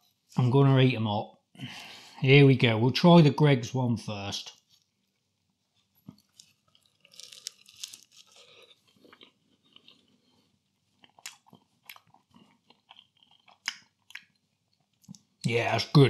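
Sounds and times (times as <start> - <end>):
chewing with soft crunches: 4.5 - 15.4
pastry crackling: 4.5 - 15.4.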